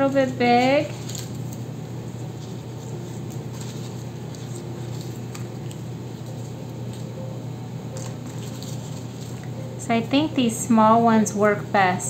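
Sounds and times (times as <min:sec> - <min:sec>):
steady low hum: 0:00.0 - 0:12.0
paper cutouts tapping and rustling: 0:02.4 - 0:07.1, 0:08.0 - 0:09.6.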